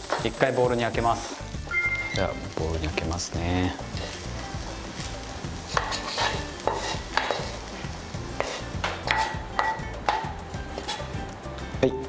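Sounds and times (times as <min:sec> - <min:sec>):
spatula scraping frying pan: 0:05.6 - 0:09.8
spatula and pan knocking bowl: 0:05.7 - 0:07.6, 0:08.4 - 0:11.0.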